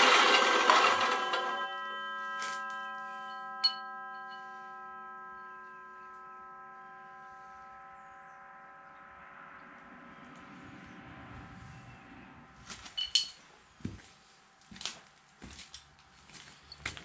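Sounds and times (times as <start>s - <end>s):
chop saw running down: 0.0s - 1.7s
metallic ringing: 0.0s - 11.0s, 13.0s - 13.5s.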